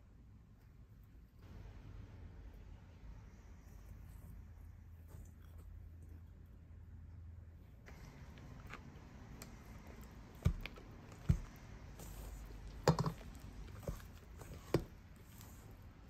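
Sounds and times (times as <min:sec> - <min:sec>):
metal beaters knocking on bowl: 0:12.7 - 0:14.8.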